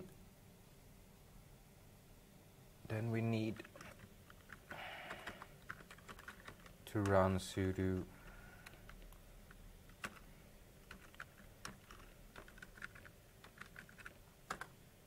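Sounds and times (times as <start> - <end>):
faint keyboard typing: 3.4 - 14.8.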